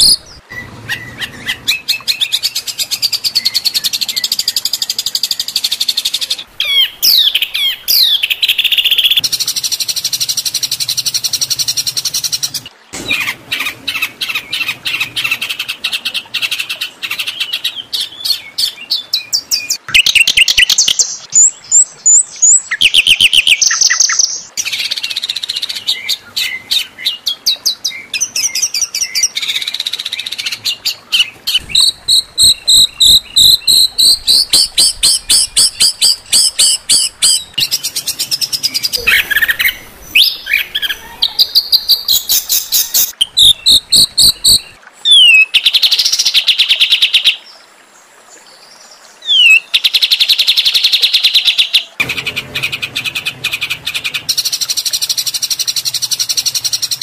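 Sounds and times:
songbird rapid harsh song: 0.0s - 25.1s, 27.9s - 46.5s.

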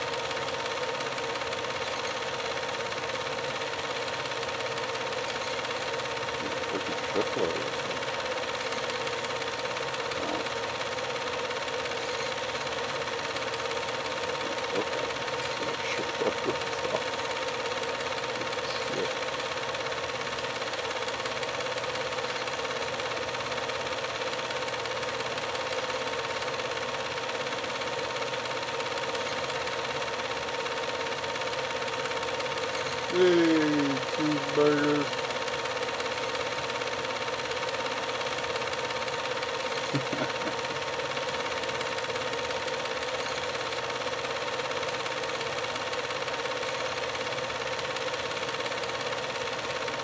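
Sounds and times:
machine running with high hum: 0.0s - 50.0s.

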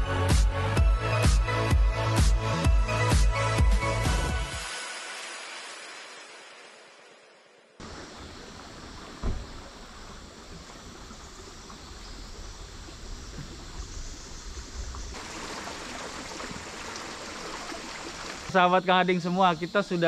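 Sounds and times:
thump: 9.2s - 9.7s
river water rushing: 15.2s - 18.6s.

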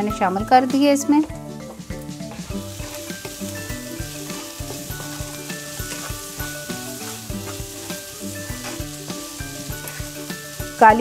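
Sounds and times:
soft background music: 0.0s - 11.0s
vegetables sizzling in butter: 1.8s - 11.0s
wooden spoon scraping pan: 4.1s - 9.0s.

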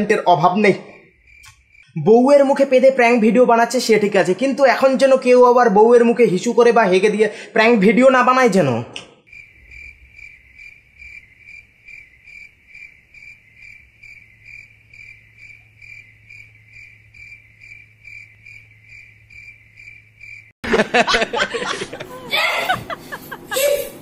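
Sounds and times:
cricket chirping: 0.9s - 2.7s, 9.2s - 20.6s
voices: 21.2s - 24.0s.

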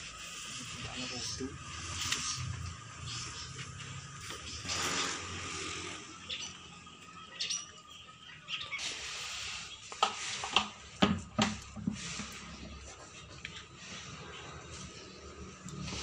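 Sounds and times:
plastic bucket knocking on concrete: 10.0s - 12.3s.

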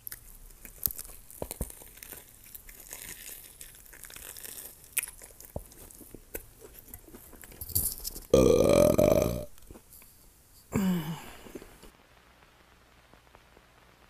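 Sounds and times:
crunchy food chewing: 0.0s - 10.1s.

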